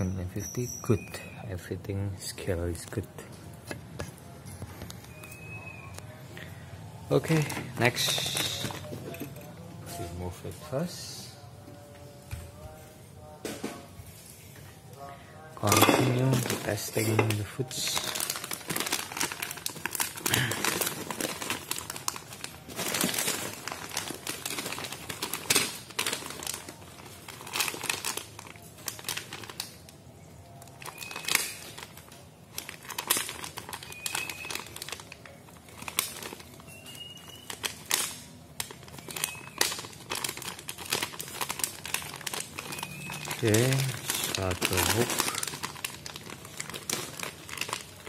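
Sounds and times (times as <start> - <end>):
plastic snack bags crinkling: 7.1 - 11.2, 15.6 - 48.0.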